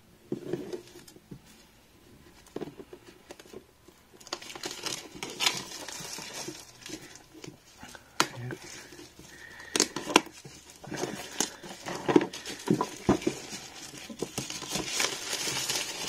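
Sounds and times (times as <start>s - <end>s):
shrink wrap crinkling: 3.2s - 16.0s.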